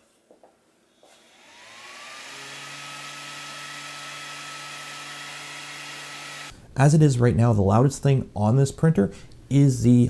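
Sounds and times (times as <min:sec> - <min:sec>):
cooling fan whirring: 0:01.2 - 0:06.5.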